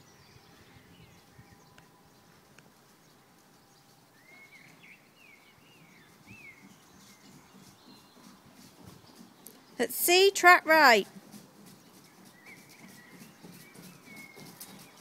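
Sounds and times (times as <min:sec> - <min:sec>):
bird chirping: 0:00.0 - 0:15.0.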